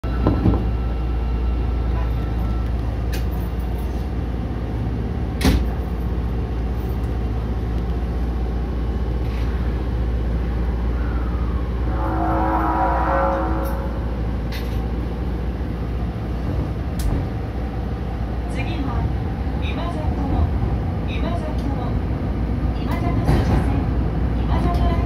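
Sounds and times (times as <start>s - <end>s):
subway train rumble: 0.0s - 25.0s
higher steady tones: 11.6s - 14.5s.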